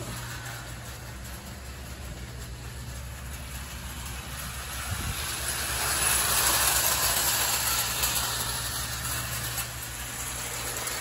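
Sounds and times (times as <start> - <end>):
low steady hum: 0.0 - 11.0
model train wheels and motor: 0.0 - 11.0.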